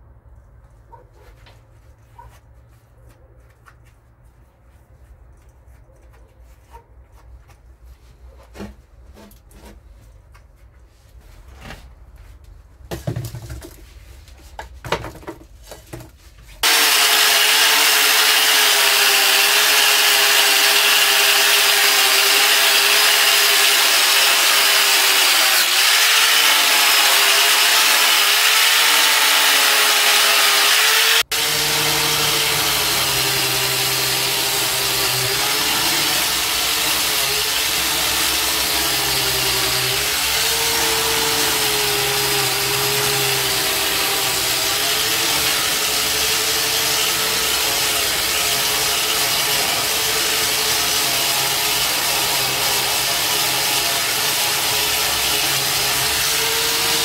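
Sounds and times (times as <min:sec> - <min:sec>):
wire brush power tool on steel: 0:16.6 - 0:57.0.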